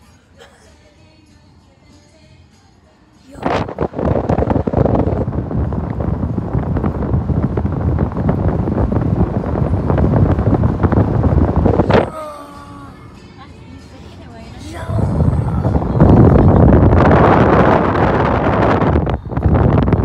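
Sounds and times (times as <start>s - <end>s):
wind buffeting a microphone: 3.4s - 12.1s, 14.8s - 20.0s.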